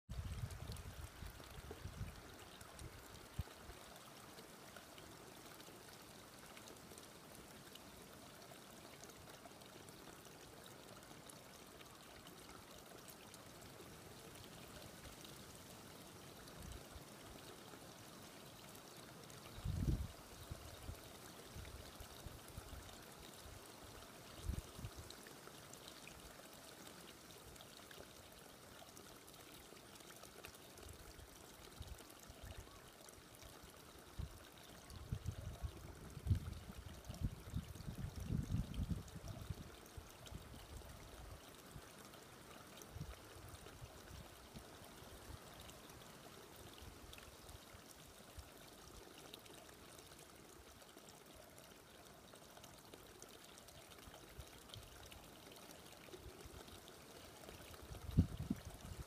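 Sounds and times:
flowing water: 0.1 - 59.0.

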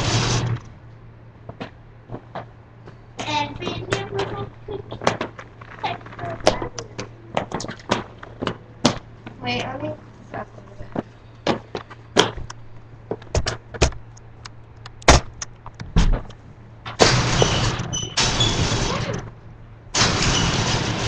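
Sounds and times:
loud rushing noise: 0.0 - 0.7.

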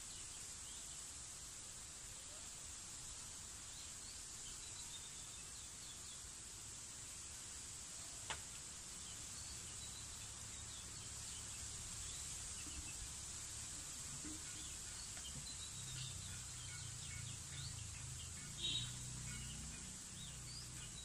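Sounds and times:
steady high hiss: 0.0 - 21.0
faint bird chirps: 9.0 - 21.0.

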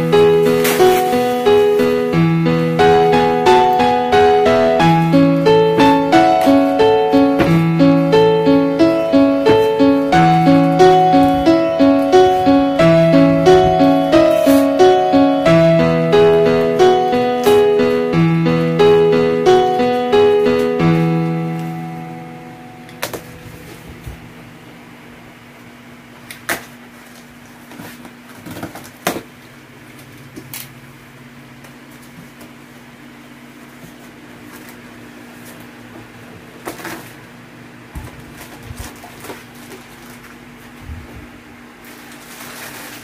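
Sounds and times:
piano music: 0.0 - 24.9.

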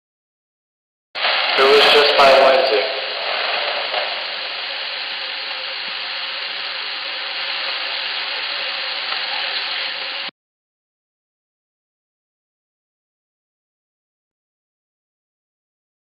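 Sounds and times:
voice recorder hiss: 1.2 - 10.3.

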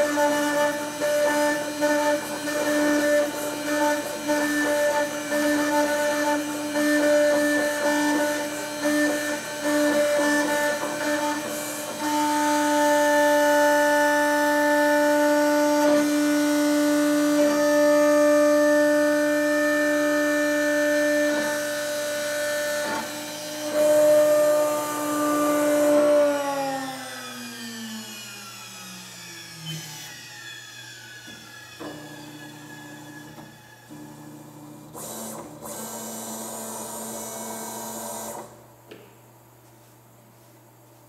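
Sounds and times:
spindle whining and spinning down: 0.0 - 34.2.

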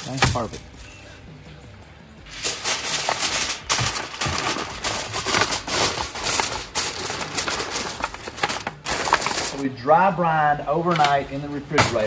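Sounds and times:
aluminium foil crinkling: 2.3 - 9.7.

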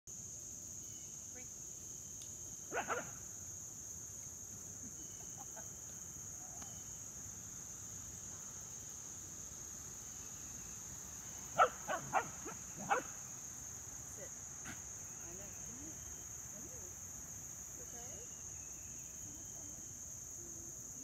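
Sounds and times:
insects droning: 0.1 - 21.0
dog barking: 2.7 - 3.2, 11.6 - 13.2.

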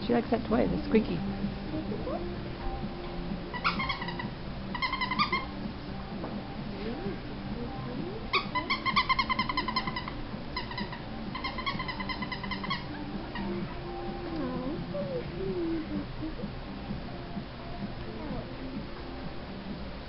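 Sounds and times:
toy squeaker squeaking rapidly: 3.6 - 5.5, 8.3 - 13.6.

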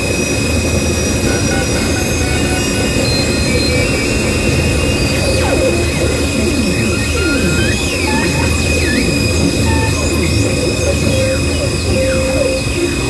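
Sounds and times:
high whining tones: 0.0 - 13.0
harsh noise music: 0.4 - 13.0
falling whistling glides: 0.9 - 13.0.

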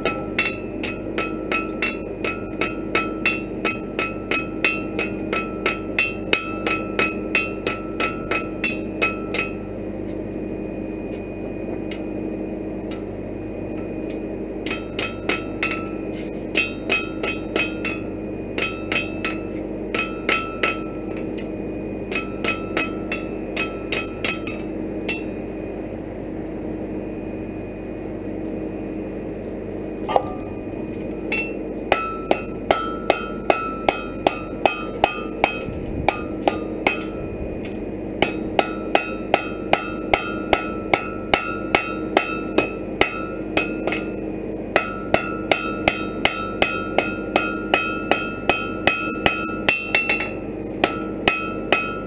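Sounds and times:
hammer striking iron on anvil: 0.0 - 9.7, 14.7 - 16.0, 16.6 - 21.0, 22.1 - 25.3, 30.1 - 37.2, 38.2 - 44.2, 44.8 - 52.0
steady hum: 30.0 - 32.4.

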